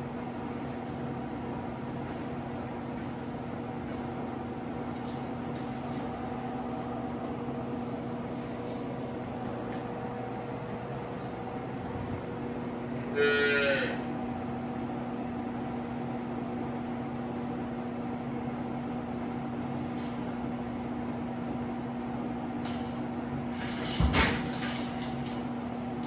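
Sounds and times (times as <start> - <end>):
ventilation fan humming: 0.0 - 26.0
calf mooing: 13.0 - 14.1.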